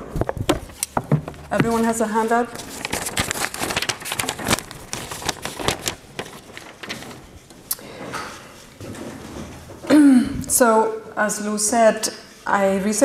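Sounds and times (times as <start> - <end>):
clicks and rustling of handling: 0.2 - 9.9.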